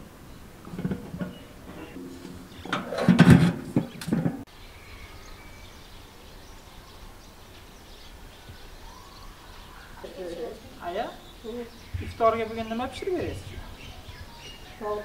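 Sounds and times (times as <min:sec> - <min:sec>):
steel buckets clanking: 0:00.0 - 0:04.5
faint bird chirps: 0:03.8 - 0:15.0.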